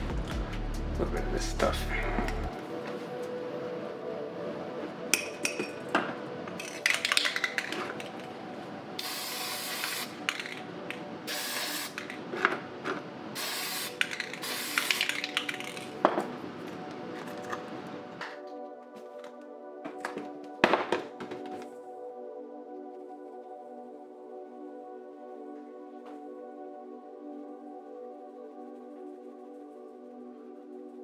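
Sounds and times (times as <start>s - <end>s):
aerosol can clicks and rattles: 6.5s - 8.3s, 9.8s - 12.2s, 13.8s - 16.0s
aerosol can hissing: 9.0s - 10.4s, 11.3s - 12.2s, 13.4s - 15.9s.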